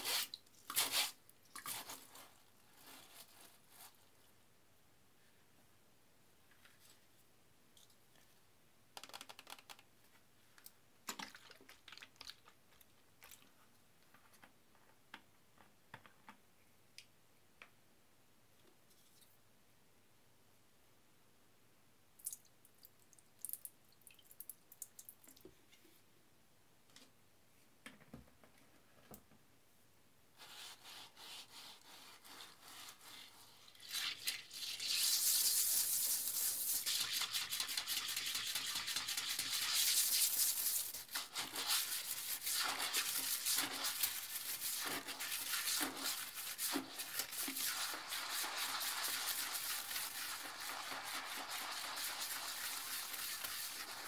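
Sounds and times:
toilet brush scrubbing: 0.0s - 4.2s, 30.4s - 54.0s.

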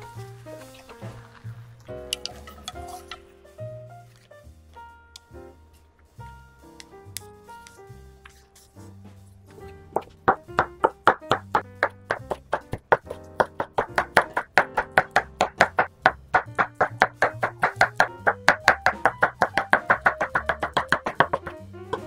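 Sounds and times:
soft background music: 0.0s - 22.0s
knife chopping on wooden board: 10.0s - 22.0s.

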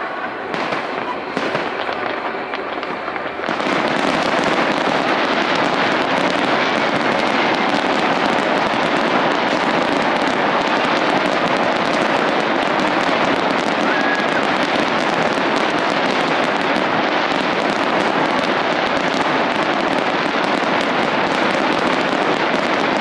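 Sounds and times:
fireworks popping and crackling: 0.0s - 23.0s.

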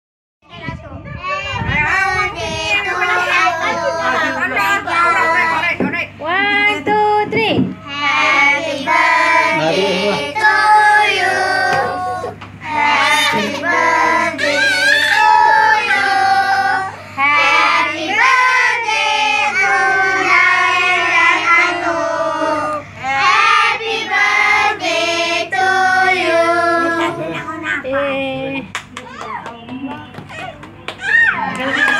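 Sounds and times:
women singing: 7.9s - 27.3s
children singing: 8.4s - 27.2s.

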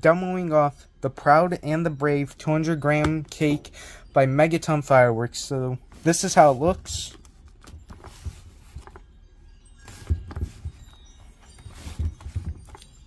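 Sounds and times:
cardboard box rubbing: 7.8s - 9.0s, 9.9s - 12.8s.

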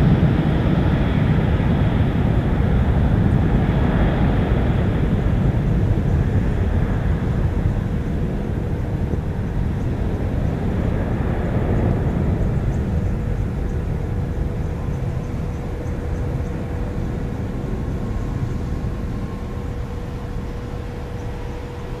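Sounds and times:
jet engines rumbling: 0.0s - 22.0s.

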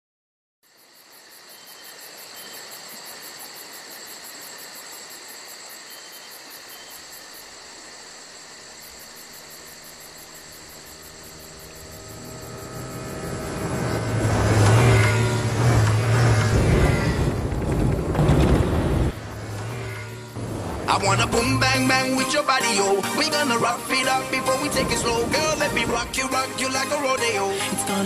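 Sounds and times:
insects trilling: 0.7s - 28.0s
quad bike engine: 8.9s - 22.0s.

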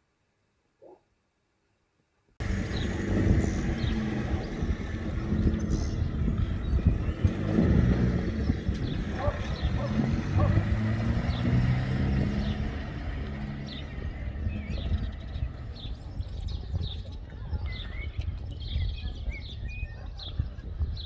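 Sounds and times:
vehicle engine humming low: 2.4s - 20.6s
small birds chirping: 2.4s - 21.0s.

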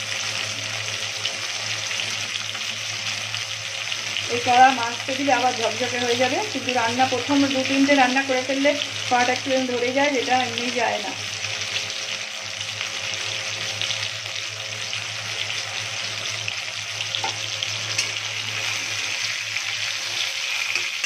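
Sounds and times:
fish frying in hot oil: 0.0s - 21.0s.

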